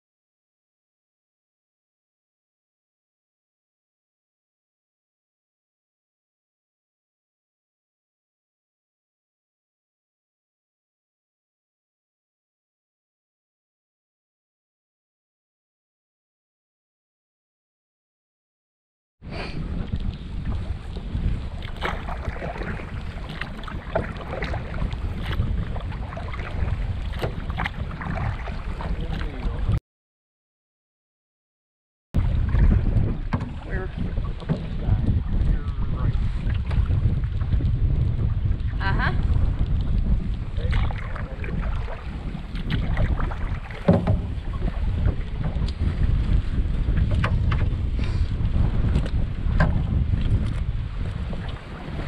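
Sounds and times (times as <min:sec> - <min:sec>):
wind buffeting microphone: 0:19.2 - 0:29.8, 0:32.2 - 0:52.0
water splashing against hull: 0:19.3 - 0:29.8, 0:32.2 - 0:52.0
knocks on canoe: 0:21.6 - 0:29.3, 0:32.2 - 0:34.8, 0:42.6 - 0:46.0, 0:46.9 - 0:47.8, 0:48.9 - 0:50.5.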